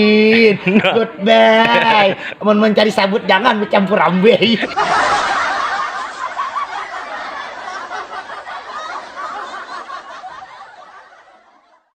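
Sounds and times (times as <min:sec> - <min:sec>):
man laughing: 0:00.0 - 0:02.4, 0:04.4 - 0:05.2.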